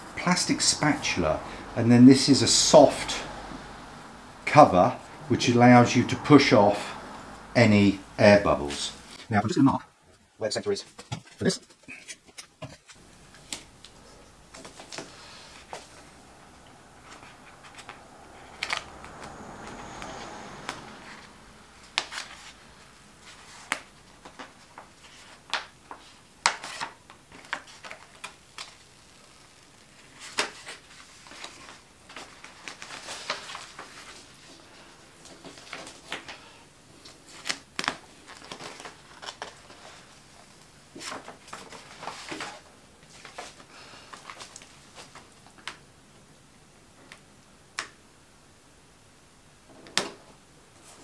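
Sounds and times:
plastic film and paper crinkling: 21.8s - 36.4s, 37.0s - 45.8s.

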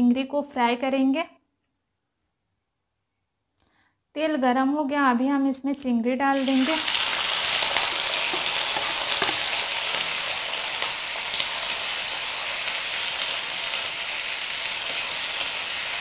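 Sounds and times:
prawns sizzling in hot oil: 6.3s - 16.0s
spatula scraping pan: 7.7s - 16.0s.

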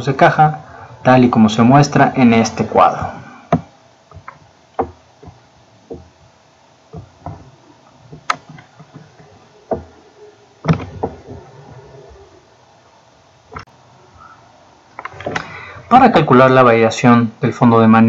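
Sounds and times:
scattered clicks and knocks: 3.5s - 6.2s, 6.9s - 10.0s, 10.6s - 11.8s.

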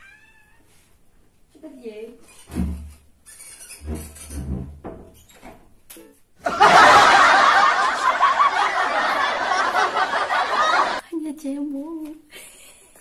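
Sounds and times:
woman laughing loudly: 6.5s - 11.0s.

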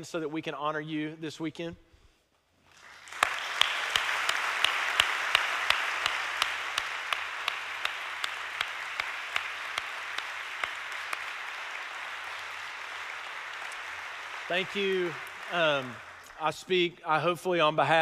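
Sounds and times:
congregation applauding: 2.7s - 17.0s
hand claps close to microphone: 2.8s - 16.4s.

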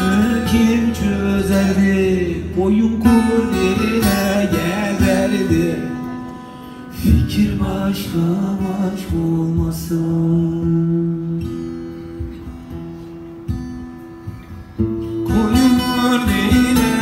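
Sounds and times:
man singing: 0.0s - 11.6s, 15.2s - 17.0s
acoustic guitar strumming: 0.0s - 17.0s.

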